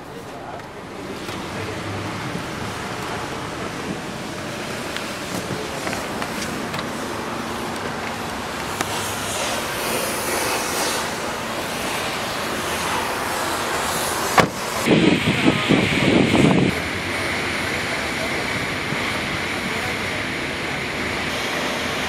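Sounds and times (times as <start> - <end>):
traffic-like background noise: 0.0 - 22.0
wind buffeting microphone: 14.4 - 21.0.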